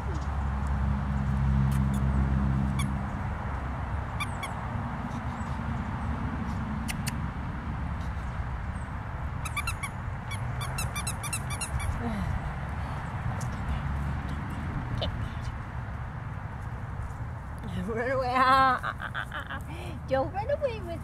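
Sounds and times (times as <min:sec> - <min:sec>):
squeaky toy squeaking: 0:02.7 - 0:02.9, 0:04.2 - 0:04.6, 0:09.4 - 0:12.0.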